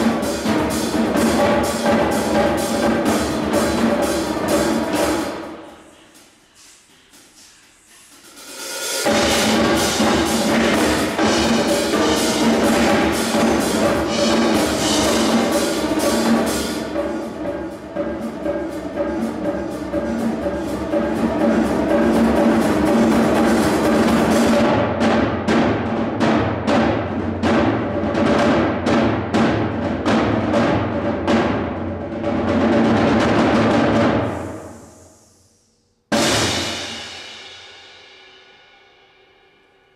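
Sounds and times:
cymbals: 0:00.0 - 0:39.9
drums: 0:00.0 - 0:39.9
timpani: 0:00.0 - 0:39.9.

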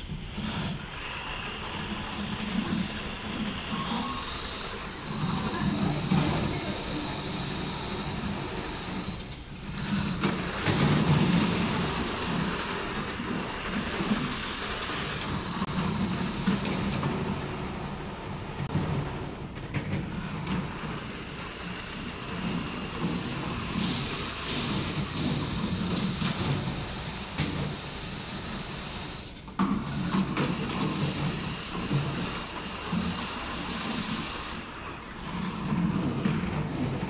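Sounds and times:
conveyor running: 0:00.0 - 0:37.0.

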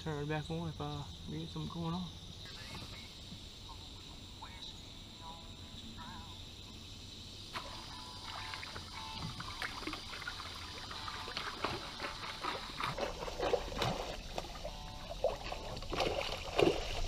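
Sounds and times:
high insect drone: 0:00.0 - 0:17.0
fish splashing at water surface: 0:07.5 - 0:17.0.

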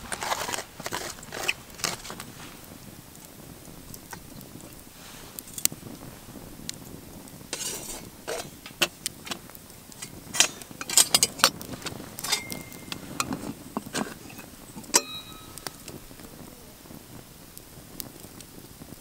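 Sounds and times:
metal cookware clinking: 0:07.6 - 0:09.0, 0:10.0 - 0:11.6, 0:12.2 - 0:16.0
short metallic ring: 0:12.2 - 0:13.0, 0:15.0 - 0:15.8.

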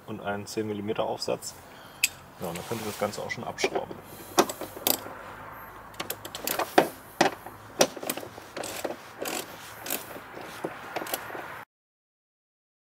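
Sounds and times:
hand ratchet clicking: 0:04.2 - 0:05.1, 0:05.9 - 0:11.5.

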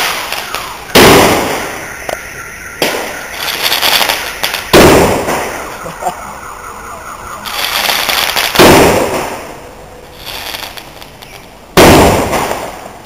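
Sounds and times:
firework hiss: 0:00.0 - 0:05.8, 0:07.4 - 0:13.0
firework bangs: 0:00.0 - 0:06.2, 0:07.4 - 0:13.0.

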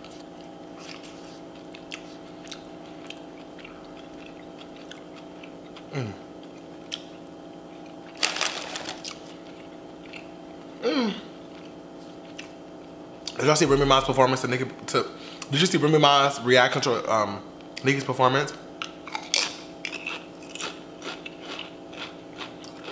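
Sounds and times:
close chewing: 0:00.0 - 0:10.3, 0:19.1 - 0:22.9
steady hum: 0:00.0 - 0:22.4
crinkly bag rustle: 0:08.1 - 0:09.5
short falling voice hums: 0:10.8 - 0:11.3.

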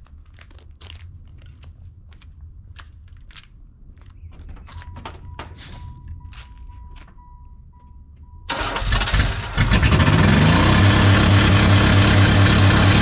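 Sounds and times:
footsteps crunching on pavement: 0:00.0 - 0:07.2.

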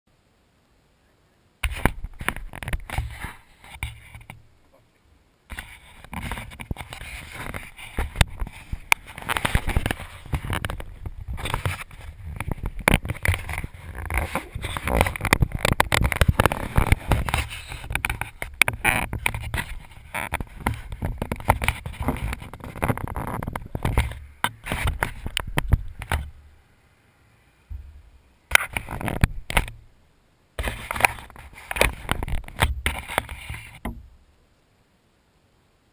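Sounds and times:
fingers handling camera: 0:05.5 - 0:26.3, 0:30.6 - 0:33.8.

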